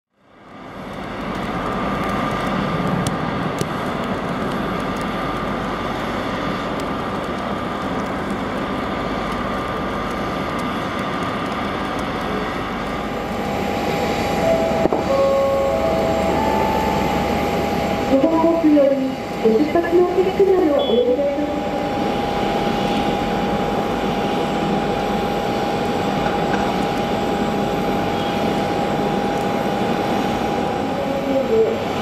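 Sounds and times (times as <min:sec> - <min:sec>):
mechanical rumble and hiss: 0:08.4 - 0:32.0
faint steady tones: 0:13.6 - 0:26.5.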